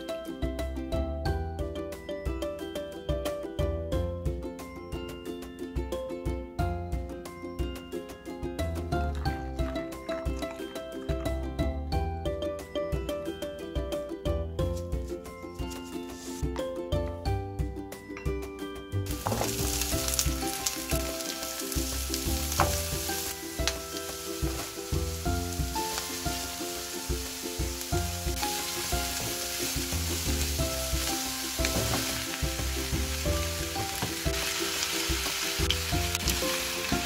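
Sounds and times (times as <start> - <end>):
background music: 0.0 - 37.0
food sizzling in a frying pan: 19.1 - 37.0.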